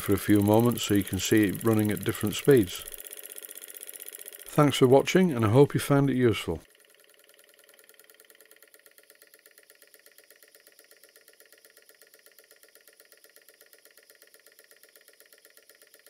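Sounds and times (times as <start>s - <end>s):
model steam engine exhaust puffs: 0.0s - 4.9s.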